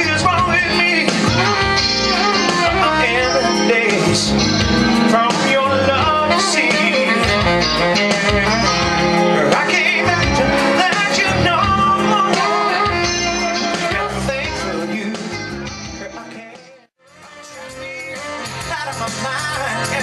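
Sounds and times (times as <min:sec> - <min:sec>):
saxophone: 0:00.0 - 0:15.8
electric guitar: 0:00.0 - 0:16.5.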